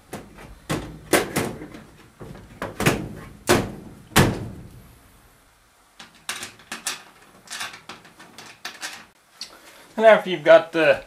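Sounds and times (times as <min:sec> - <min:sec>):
metal panel knocks and clunks: 0:00.0 - 0:04.8.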